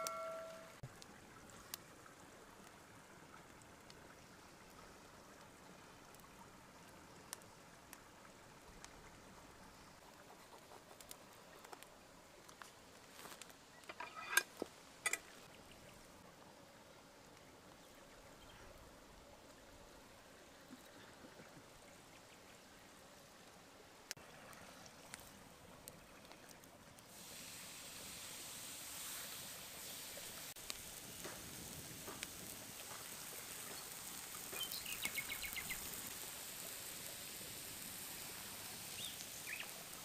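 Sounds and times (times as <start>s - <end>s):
wood fire hissing: 10.9s - 13.5s, 26.6s - 40.0s.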